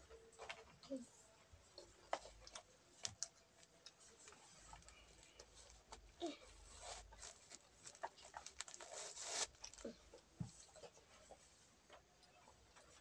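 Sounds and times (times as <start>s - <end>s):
tissue pack rustling: 6.7s - 9.9s.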